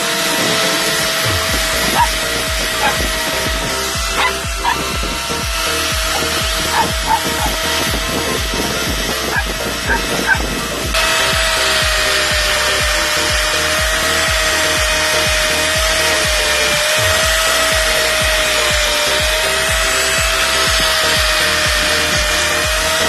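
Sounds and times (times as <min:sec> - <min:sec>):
angle grinder whining: 0:00.0 - 0:23.0
grinding disc on metal: 0:00.0 - 0:23.0.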